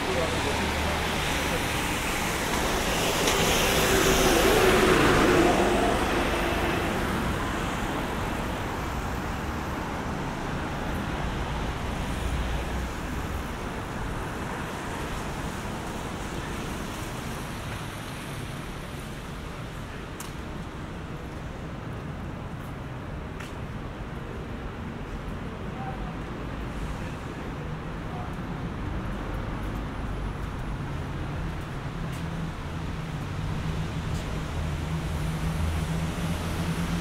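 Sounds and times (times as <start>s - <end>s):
tyres hissing on wet road: 0.0s - 19.9s, 26.5s - 27.8s, 31.9s - 37.0s
traffic wash: 0.0s - 37.0s.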